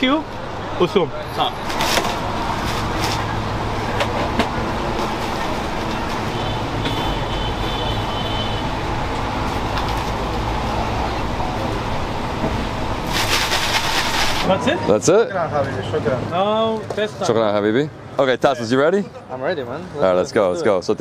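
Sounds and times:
street traffic rumble: 0.0s - 21.0s.

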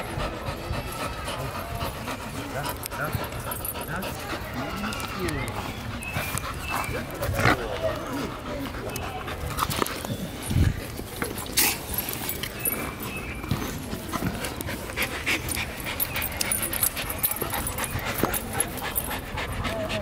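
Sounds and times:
dog panting: 0.0s - 20.0s.

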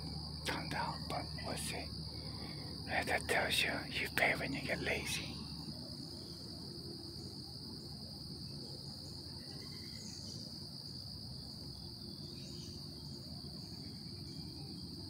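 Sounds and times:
faint insect chirps: 0.0s - 15.0s
insect chorus drone: 0.0s - 15.0s.

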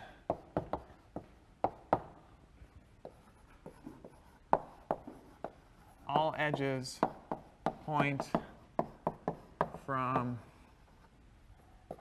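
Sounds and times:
chalk tapping on blackboard: 0.3s - 2.2s, 3.0s - 10.5s
chalk scratching: 3.0s - 11.1s.

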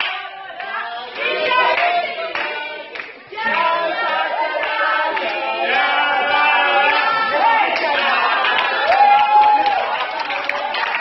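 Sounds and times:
hand claps: 0.0s - 3.7s
voices singing together: 0.0s - 9.2s.

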